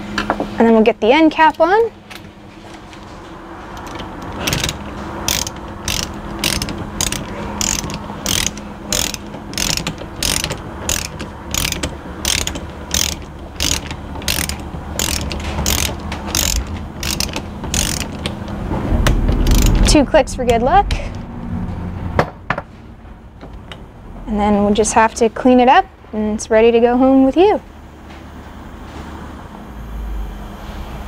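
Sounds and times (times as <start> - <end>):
ratchet wrench clicking: 3.8 - 18.4, 19.3 - 20.0.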